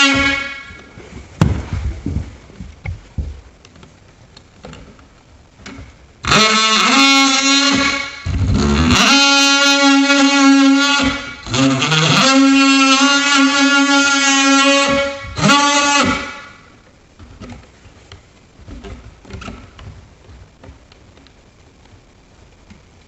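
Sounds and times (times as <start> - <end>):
handling knocks: 1.0 - 4.0
oscillating multi-tool buzzing: 6.2 - 16.6.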